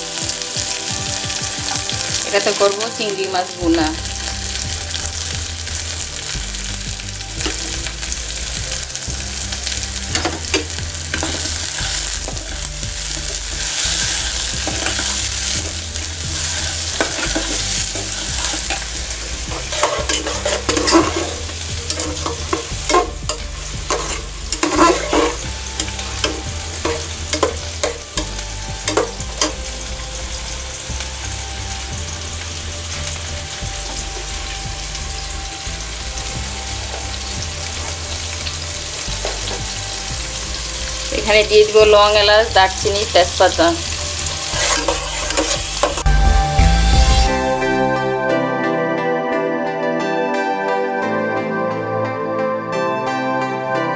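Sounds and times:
onions sizzling in oil: 0.0 - 47.9
spatula scraping pot: 10.2 - 28.3, 44.2 - 46.1.

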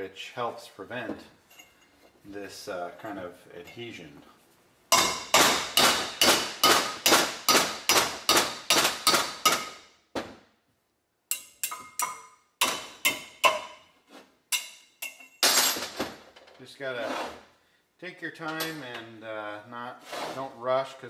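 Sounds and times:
hammer striking chisel on metal: 4.9 - 9.8, 11.3 - 13.9, 14.5 - 15.4.

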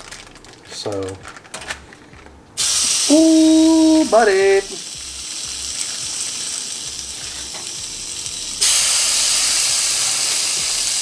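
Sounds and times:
fish sizzling on grill: 2.6 - 11.0.

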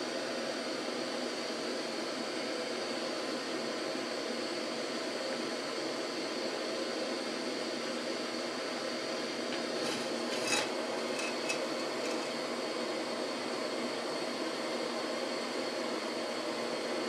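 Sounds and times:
stovetop burner hissing: 4.2 - 17.0
light metal scrapes and clicks: 9.5 - 12.4.

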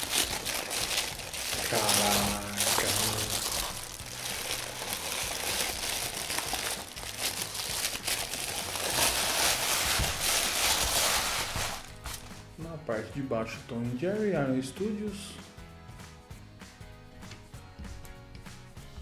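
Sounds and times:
wrapping sheet crinkling: 0.0 - 12.4.

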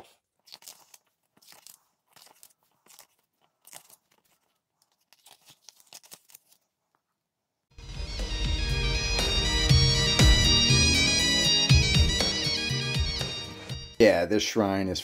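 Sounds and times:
paper pages being turned: 0.0 - 7.1.

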